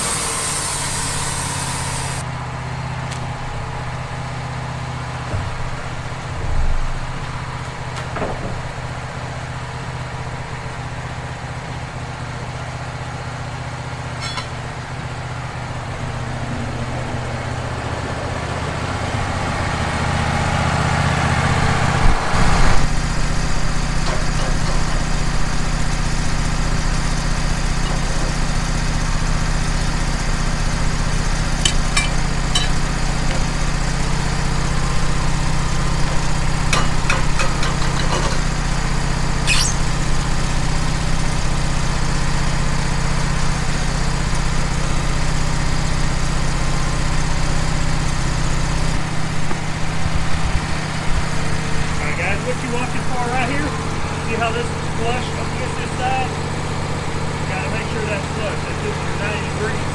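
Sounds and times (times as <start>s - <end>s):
band sawmill cutting log: 0.0s - 2.3s, 18.4s - 59.9s.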